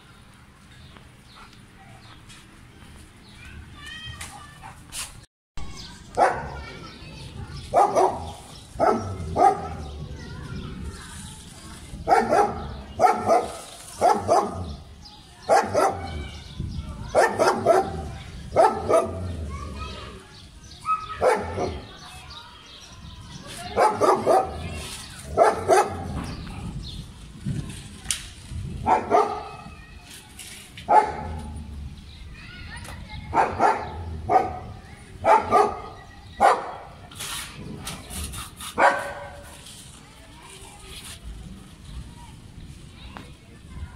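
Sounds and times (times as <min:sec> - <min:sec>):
scratchy noises: 0:04.1 - 0:14.9, 0:23.2 - 0:31.9, 0:33.4 - 0:42.1
dog barking: 0:06.2 - 0:06.6, 0:07.7 - 0:09.8, 0:12.1 - 0:14.7, 0:15.5 - 0:16.1, 0:17.1 - 0:18.0, 0:18.6 - 0:19.2, 0:21.2 - 0:21.8, 0:23.8 - 0:24.6, 0:25.3 - 0:26.1, 0:28.8 - 0:29.6, 0:30.9 - 0:31.3, 0:33.3 - 0:36.8, 0:38.8 - 0:39.4.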